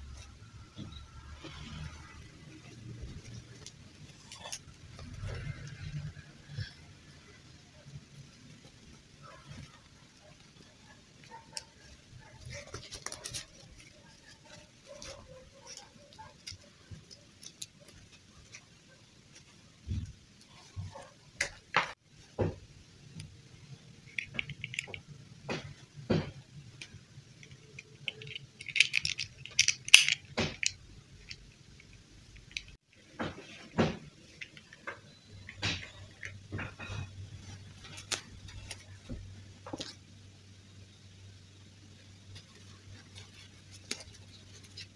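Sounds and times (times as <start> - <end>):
fabric rustling: 0.0 - 21.6, 32.9 - 40.1.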